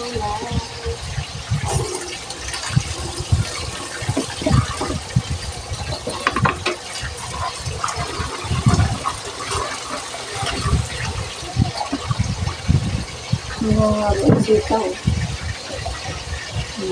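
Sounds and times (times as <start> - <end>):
water splashing: 0.0 - 16.9
tap running into a basin: 1.6 - 16.8
plastic plate clacks: 6.1 - 6.8.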